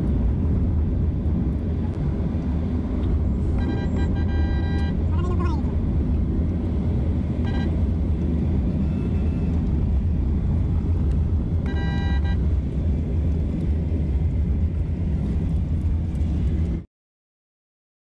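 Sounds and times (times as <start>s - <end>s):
car cabin road rumble: 0.0s - 16.9s
vehicle horn: 3.6s - 5.0s, 7.4s - 7.8s, 11.6s - 12.4s.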